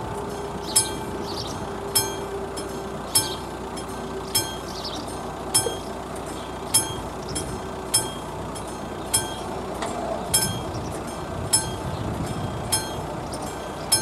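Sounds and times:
level-crossing warning bell: 0.0s - 14.0s.

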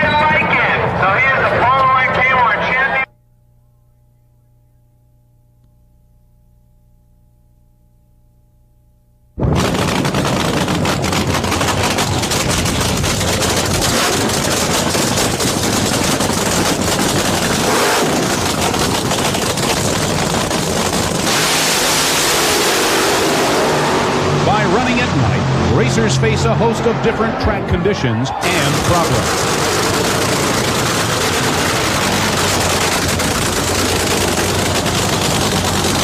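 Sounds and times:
loud crackling race engine: 9.4s - 36.0s.

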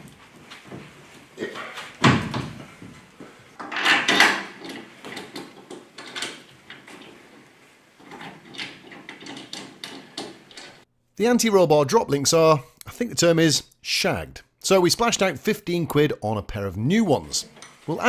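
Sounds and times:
scraping rattle: 3.6s - 10.8s.

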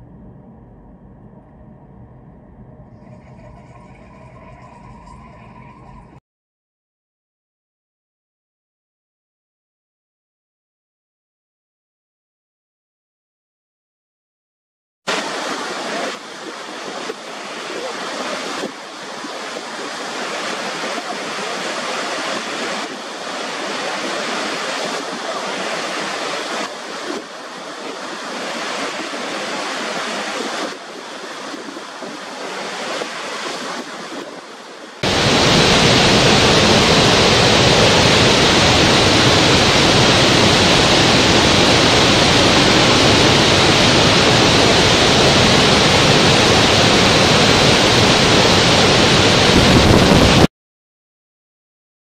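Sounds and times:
waterfall rushing: 15.1s - 50.5s.

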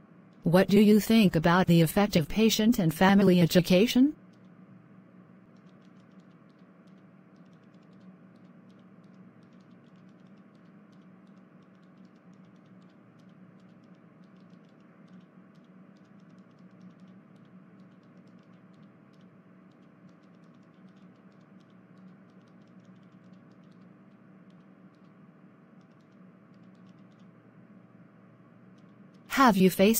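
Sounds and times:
steady low hum: 0.0s - 29.9s
faint rapid clicking: 4.2s - 4.6s, 5.4s - 27.6s, 28.5s - 29.3s.

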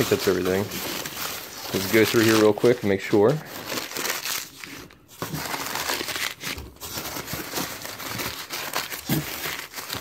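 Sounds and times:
rummaging in cardboard box: 0.0s - 10.0s.

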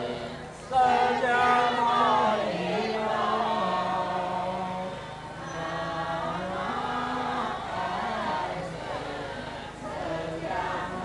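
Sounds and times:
group chanting in unison: 0.0s - 11.0s.

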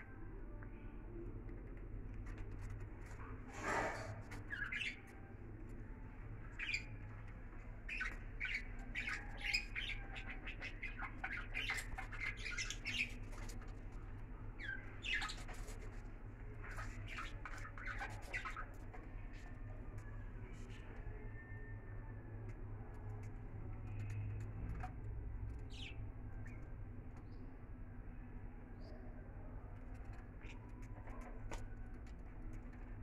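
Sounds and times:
steady low hum: 0.0s - 33.0s
budgerigars chirping and squawking: 3.7s - 5.1s, 6.6s - 7.0s, 7.9s - 13.6s, 14.6s - 16.0s, 16.6s - 19.3s, 25.7s - 26.0s.

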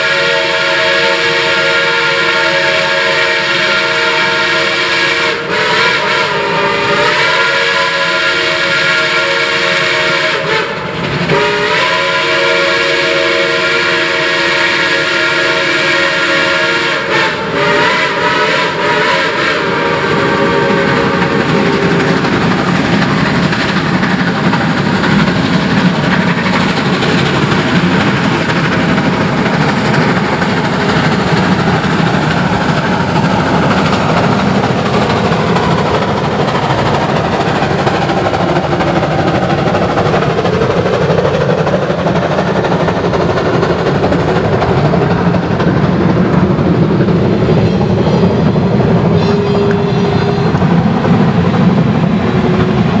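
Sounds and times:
steam locomotive whistle: 0.0s - 24.6s, 47.1s - 50.7s
steam locomotive exhaust chugging: 0.0s - 53.0s.

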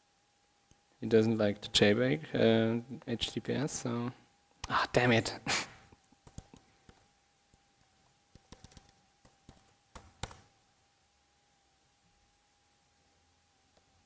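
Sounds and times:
faint steady hum: 0.0s - 14.0s
faint keyboard typing: 6.0s - 10.5s.

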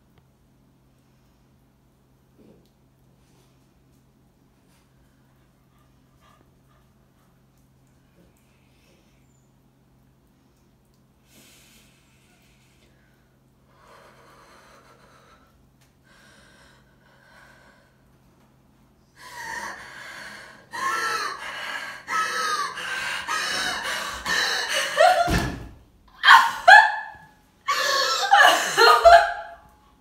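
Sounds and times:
woman breathing: 11.2s - 18.2s, 19.1s - 25.3s, 27.7s - 29.2s
woman gasping: 19.2s - 25.4s.

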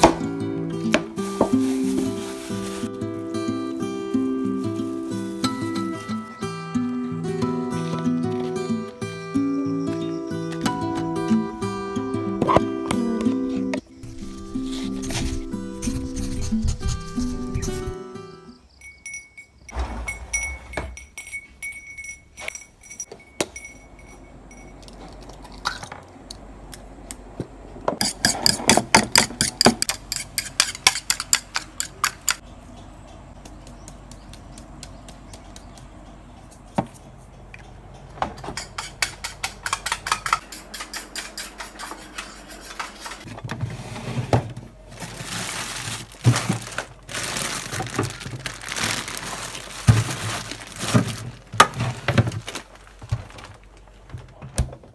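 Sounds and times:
plastic bags rustling: 0.8s - 6.4s, 13.9s - 18.0s, 43.2s - 54.9s
items knocked in a fridge: 44.3s - 46.9s, 49.7s - 54.9s.

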